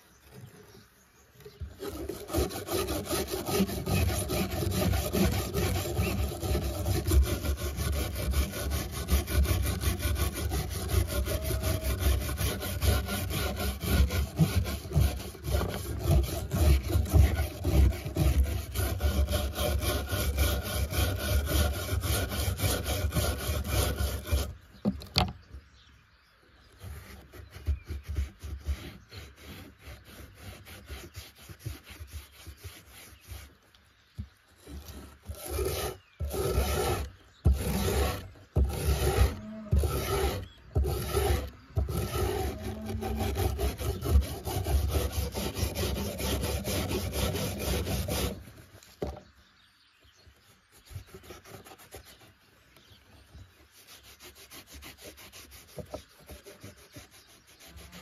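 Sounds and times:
sandpaper rubbing on metal blade: 1.8 - 24.5, 26.8 - 33.6, 34.8 - 48.4, 50.7 - 52.4, 53.8 - 58.0
wire brush scrubbing metal: 1.8 - 24.5, 35.3 - 48.5.

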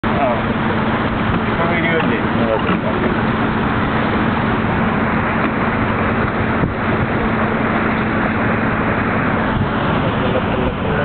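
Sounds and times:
boat engine running: 0.0 - 11.0
rushing noise: 2.9 - 11.0.

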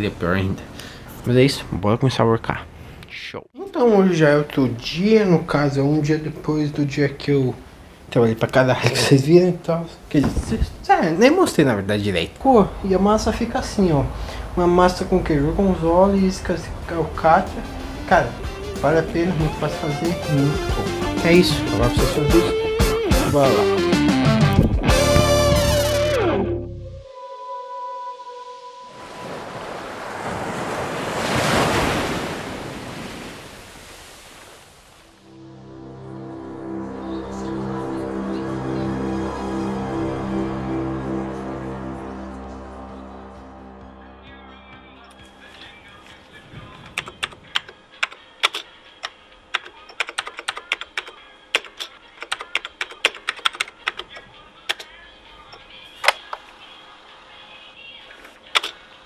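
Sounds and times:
ocean wave washing: 28.6 - 41.9
keyboard typing: 46.9 - 54.9, 58.4 - 58.8.

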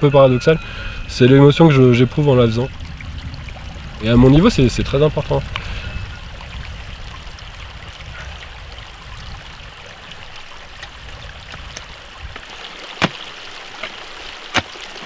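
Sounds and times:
steady rushing noise: 0.0 - 13.2
pickaxe striking rock: 13.0 - 13.2, 13.8 - 14.8.

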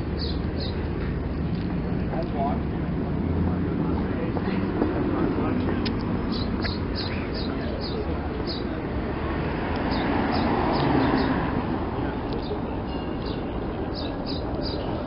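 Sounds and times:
small birds chirping: 0.0 - 0.9, 5.8 - 15.0
street noise: 0.0 - 15.0.

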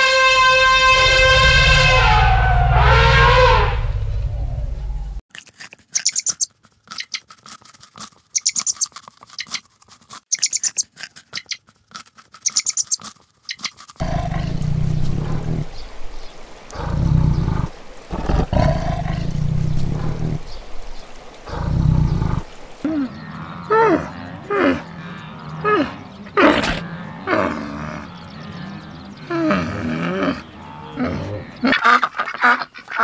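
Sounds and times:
rabbit chewing crunches: 5.3 - 15.8
tiger growling: 14.0 - 31.8.

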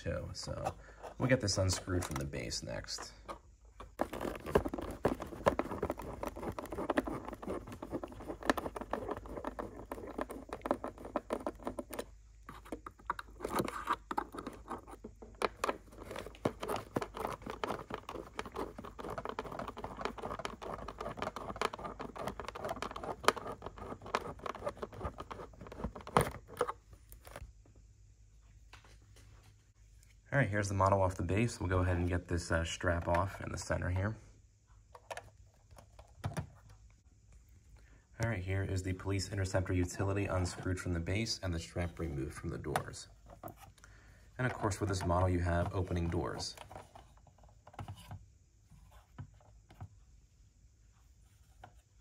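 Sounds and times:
cardboard and plastic crinkling: 3.8 - 27.4.

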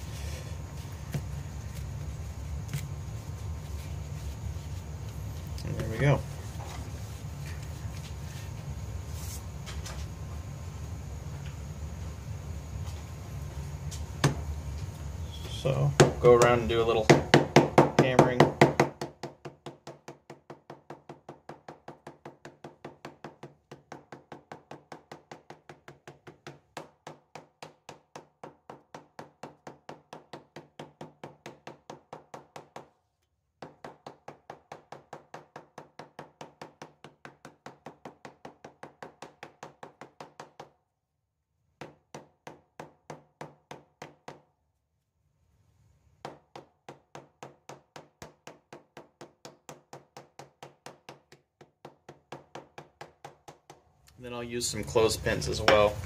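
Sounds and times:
wooden mallet tapping on leather: 46.2 - 53.8.

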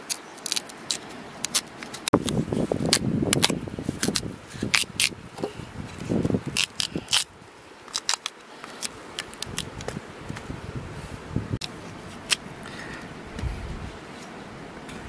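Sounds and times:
knife cutting radish crunches: 0.0 - 5.2, 6.5 - 7.3.

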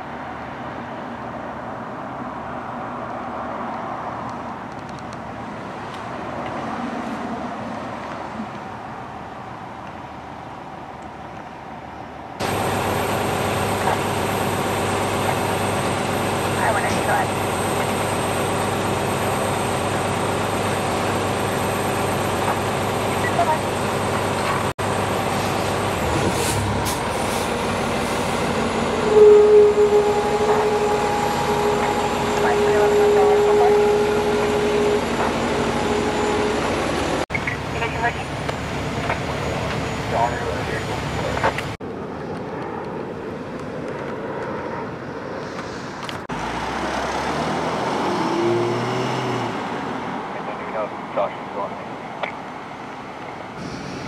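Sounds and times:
engine and road noise: 0.0 - 54.0
high-pitched siren tone: 12.4 - 41.8.

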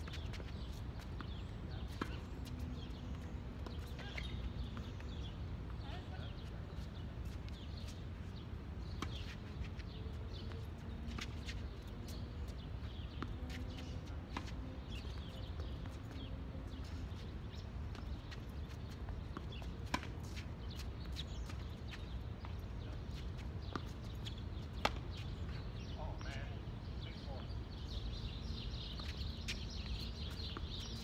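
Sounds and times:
tennis ball bouncing: 0.0 - 5.0, 17.9 - 22.6, 23.6 - 25.3.

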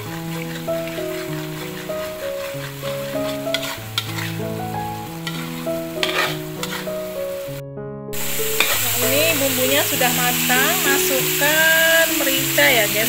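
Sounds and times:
metal spatula scraping pan: 0.0 - 7.2, 8.2 - 11.0
spice paste sizzling in oil: 0.0 - 7.6, 8.2 - 13.0
soft background music: 0.0 - 13.0.

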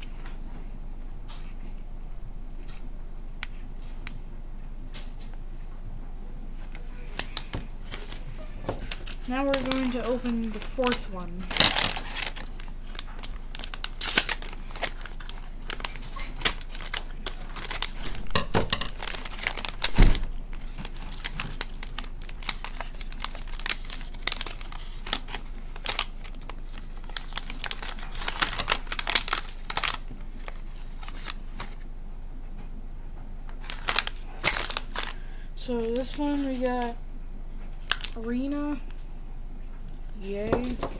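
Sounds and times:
plastic bag crinkling and tearing: 6.6 - 31.8, 33.6 - 36.7, 37.8 - 38.5, 40.2 - 40.9.

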